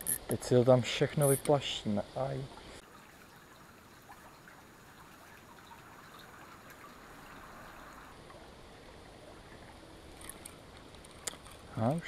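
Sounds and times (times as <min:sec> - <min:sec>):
creek trickling: 0:00.0 - 0:12.0.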